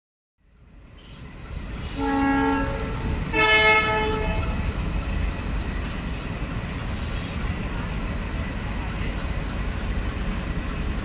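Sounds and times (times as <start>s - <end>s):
train rumbling: 0.5s - 11.0s
locomotive horn blast: 1.9s - 4.6s.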